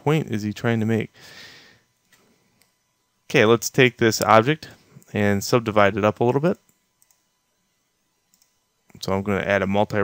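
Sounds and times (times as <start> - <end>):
man drawing breath: 1.2 - 1.9
faint clicks: 8.3 - 9.0.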